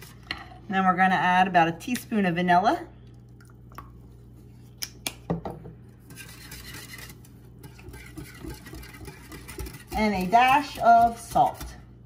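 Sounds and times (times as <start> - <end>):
wire whisk beating in glass bowl: 6.1 - 11.8.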